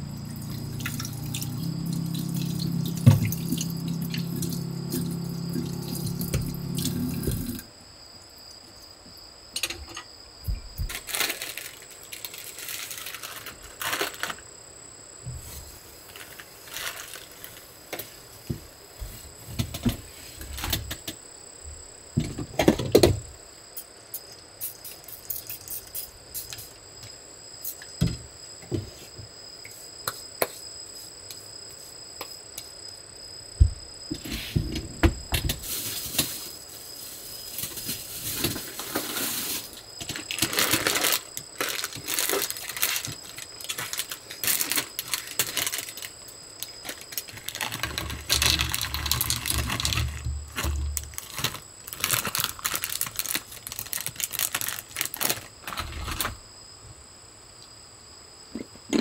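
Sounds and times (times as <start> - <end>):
plastic packet crinkling: 10.9 - 14.5, 16.0 - 17.7, 35.6 - 56.4.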